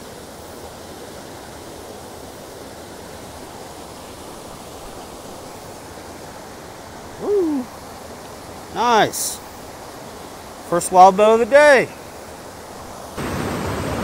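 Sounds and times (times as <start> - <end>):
stream rushing over rocks: 0.0 - 14.0
short voice sliding downward: 7.2 - 7.7.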